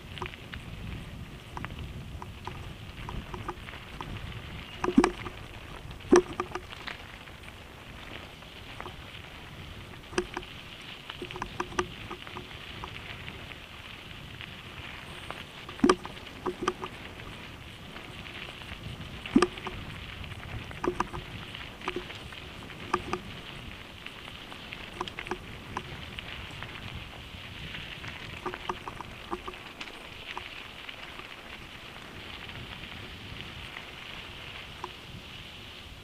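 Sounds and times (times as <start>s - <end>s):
tyres crunching on gravel: 0.0s - 36.0s
bike rattling knocks: 6.0s - 6.9s, 10.0s - 10.6s.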